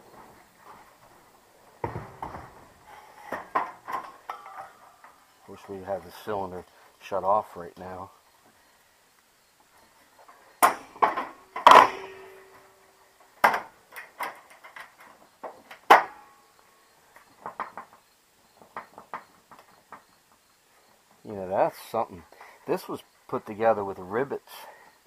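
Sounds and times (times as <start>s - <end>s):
sheet metal knocks and clanks: 10.6s - 12.6s
metallic ring: 10.8s - 12.8s.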